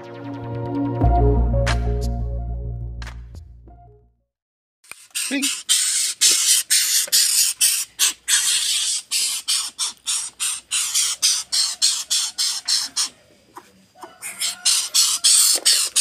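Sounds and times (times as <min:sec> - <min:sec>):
bird chick harsh hissing rasps: 0:04.9 - 0:16.0.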